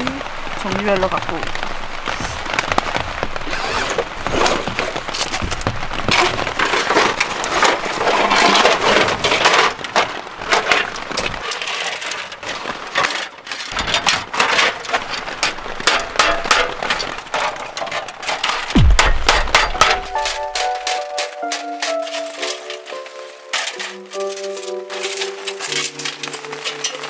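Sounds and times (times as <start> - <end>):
rustling handling noise: 3.5 - 27.0
sheet-metal panels clanking: 6.1 - 27.0.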